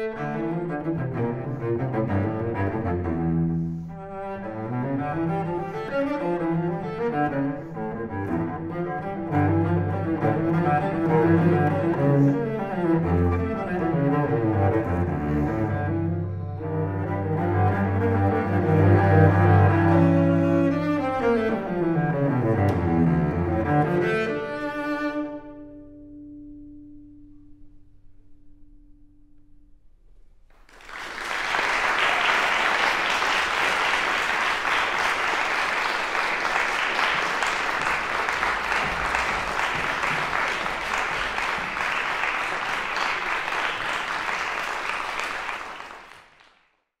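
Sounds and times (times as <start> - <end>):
audience applause: 30.6 - 46.7.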